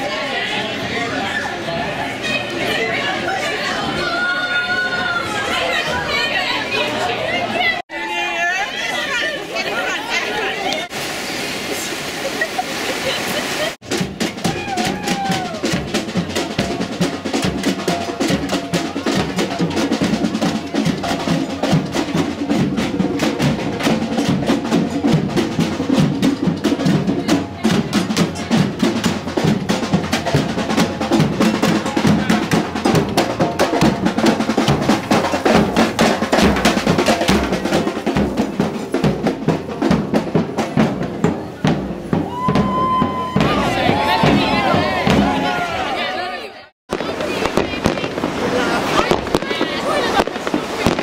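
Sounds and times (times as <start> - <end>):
crowd voices: 0.0 - 51.0
fast loud drumming: 13.8 - 45.8, 46.9 - 51.0.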